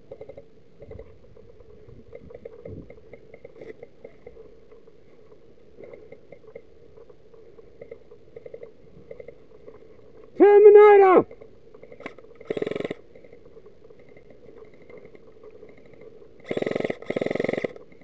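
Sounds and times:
steady low hum: 0:00.0 - 0:10.5.

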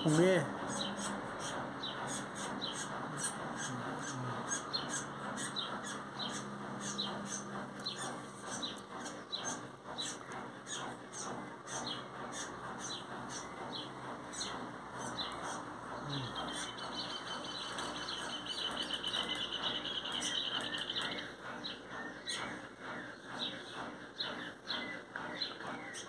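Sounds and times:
fledgling begging chirps: 0:00.0 - 0:26.0.

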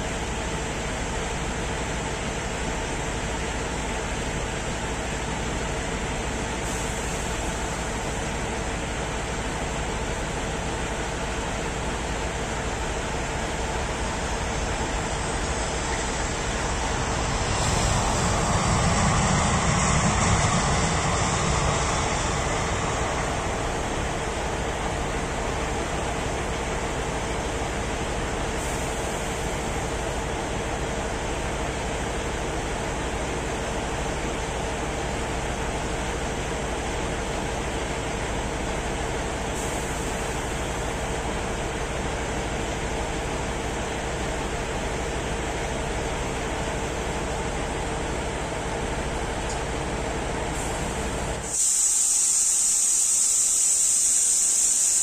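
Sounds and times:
jet engines rumbling: 0:10.2 - 0:33.7
high hiss: 0:13.2 - 0:26.8, 0:50.6 - 0:55.0.

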